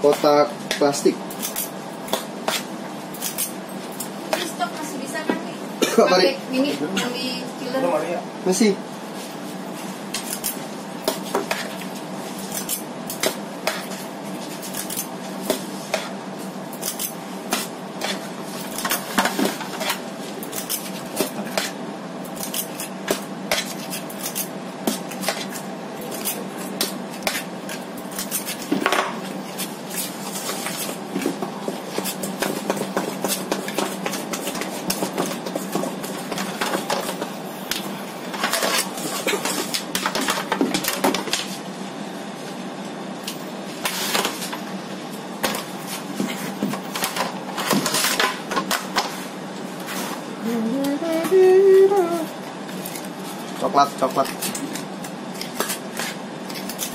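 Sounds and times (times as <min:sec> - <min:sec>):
steady low hum: 0:00.0 - 0:56.9.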